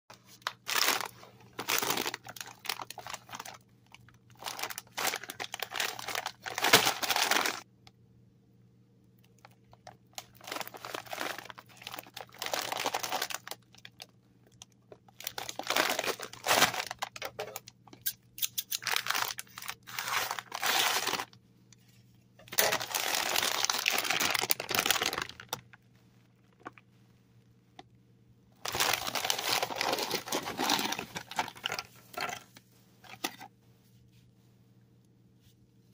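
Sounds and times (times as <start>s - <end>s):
plastic chip bag crinkling: 0.2s - 7.6s, 9.4s - 17.8s, 18.5s - 21.4s, 22.4s - 25.8s, 28.6s - 33.4s.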